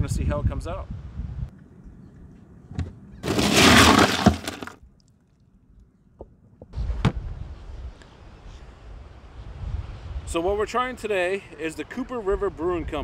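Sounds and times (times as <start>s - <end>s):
ice cubes clattering and crunching: 3.2s - 4.8s.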